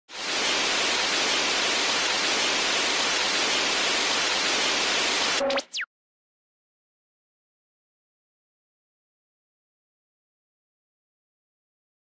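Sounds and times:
tv static hiss: 0.1s - 5.8s
electronic glitch tones: 5.4s - 5.9s.

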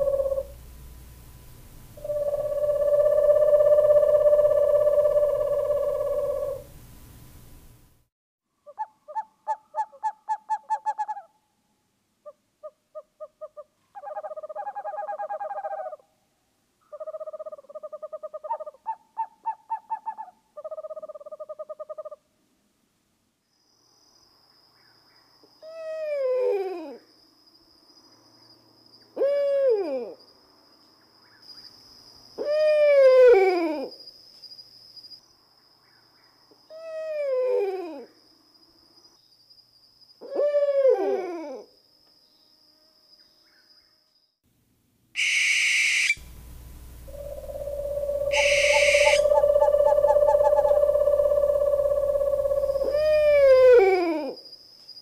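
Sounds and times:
owl calls sliding down in pitch: 0.0s - 0.6s, 2.0s - 6.7s, 45.2s - 46.2s, 47.1s - 54.2s
owl pulsing trills: 0.0s - 0.6s, 2.0s - 6.8s, 8.6s - 11.3s, 12.2s - 16.0s, 16.8s - 22.2s, 40.2s - 41.7s, 45.2s - 46.3s, 46.9s - 54.6s.

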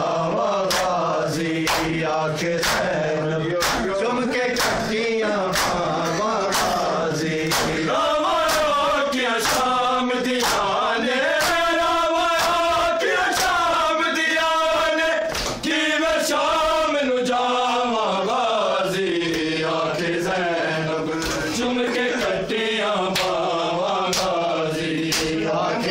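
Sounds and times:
men chanting a lament: 0.0s - 25.9s
hands slapping chests: 0.7s - 1.0s, 1.6s - 2.0s, 2.6s - 2.9s, 3.6s - 4.0s, 4.6s - 4.9s, 5.5s - 5.8s, 6.5s - 7.8s, 8.4s - 8.8s, 9.4s - 9.8s, 10.4s - 10.7s, 11.4s - 11.7s, 12.4s - 12.7s, 13.3s - 13.6s, 15.3s - 15.7s, 21.2s - 21.6s, 23.2s - 23.4s, 24.1s - 24.4s, 25.0s - 25.4s.

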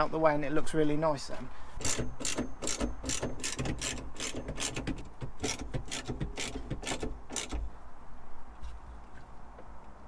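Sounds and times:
ratchet spanner clicking: 1.8s - 7.6s.

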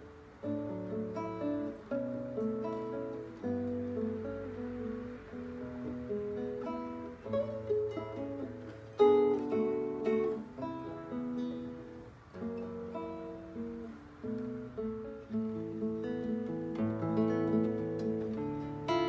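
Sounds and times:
classical guitar fingerstyle: 0.0s - 19.0s.

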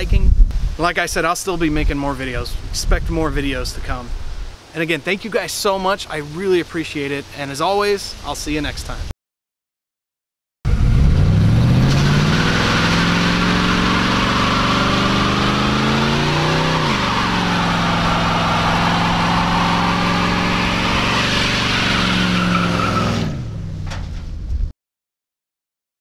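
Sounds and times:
engine revving at high revs: 10.7s - 23.5s
tyres squealing on pavement: 16.1s - 23.3s.

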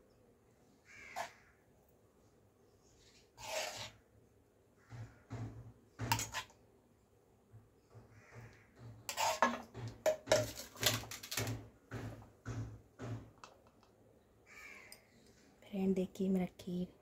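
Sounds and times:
metal spoon scraping a pan: 3.1s - 4.0s, 6.0s - 6.6s, 9.1s - 11.5s.

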